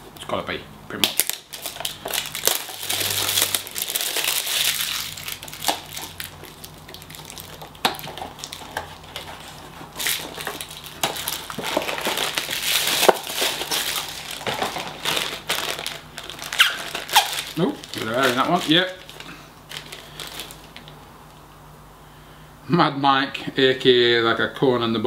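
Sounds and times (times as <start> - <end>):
packaging crinkling: 1.0 - 21.4
foil bag crackling: 1.2 - 21.0.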